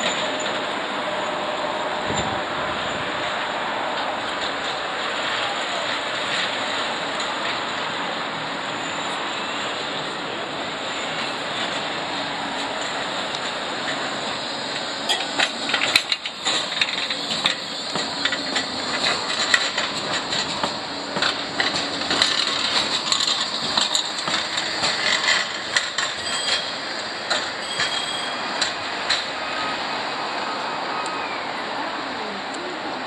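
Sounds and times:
tram wheels clicking over rail joints: 0:00.0 - 0:30.2
tram rolling noise: 0:00.0 - 0:33.0
high wheel squeals: 0:08.6 - 0:31.7.

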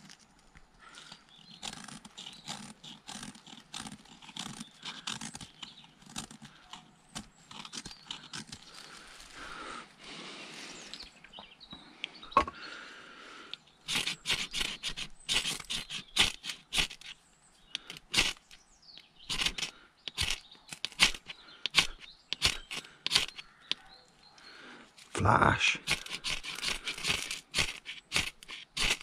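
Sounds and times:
knife scraping a ferrocerium rod: 0:01.4 - 0:08.7, 0:13.8 - 0:18.6, 0:19.3 - 0:23.9, 0:25.8 - 0:29.0.

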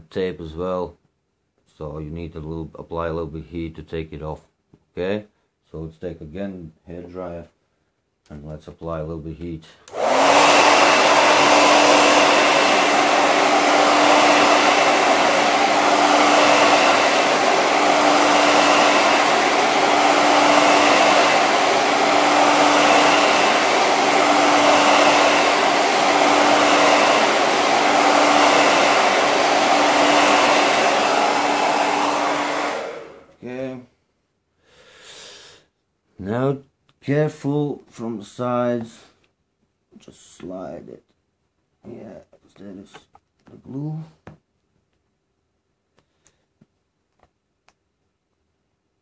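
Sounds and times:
hair dryer running: 0:09.9 - 0:33.5.

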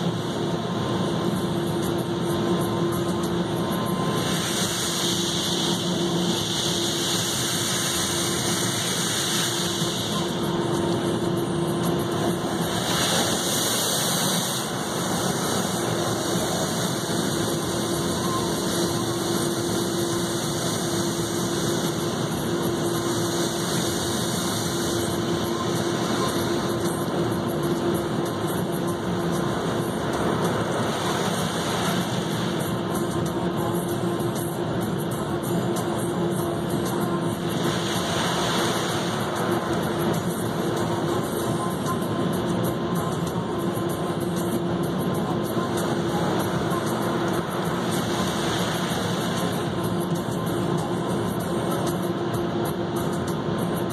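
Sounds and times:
machine hum: 0:00.0 - 0:53.9
water spray hissing on car: 0:12.4 - 0:25.2.

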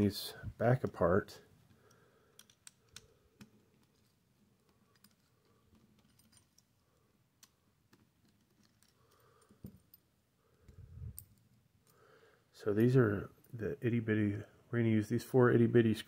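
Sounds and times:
screwdriver and metal parts clicking: 0:01.8 - 0:12.0.

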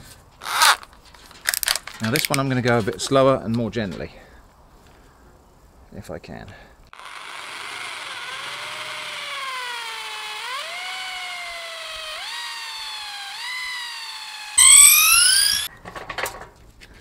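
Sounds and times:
electric drill whining: 0:07.0 - 0:15.7.

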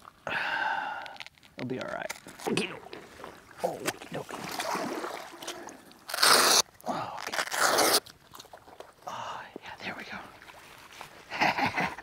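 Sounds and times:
water splashing: 0:02.4 - 0:09.0.

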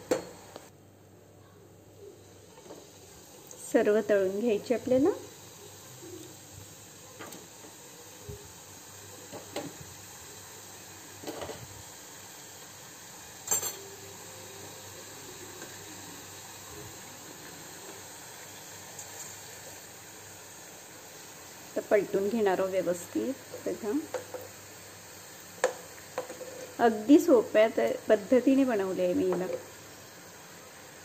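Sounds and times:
hot oil sizzling: 0:01.9 - 0:31.0.

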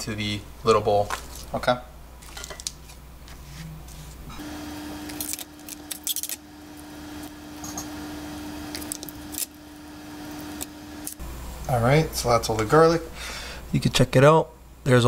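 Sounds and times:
steady hum: 0:04.1 - 0:13.7
garlic cloves being peeled: 0:04.5 - 0:11.2.

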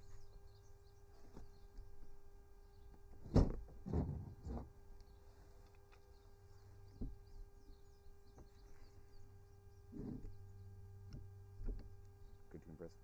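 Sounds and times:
steady low hum: 0:00.0 - 0:13.0
faint bird chirps: 0:05.0 - 0:10.9.

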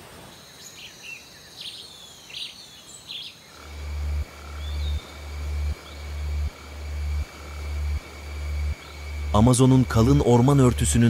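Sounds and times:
high insect tones: 0:00.3 - 0:11.0
bird chirps: 0:00.4 - 0:10.1
deep pulsing throb: 0:03.6 - 0:11.0.

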